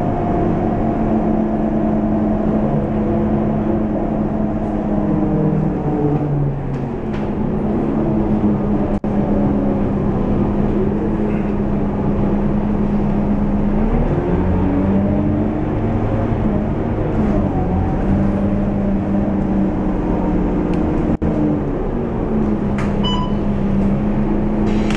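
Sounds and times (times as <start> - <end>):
bus diesel engine droning: 0.0 - 24.9
short electronic beep: 23.0 - 23.5.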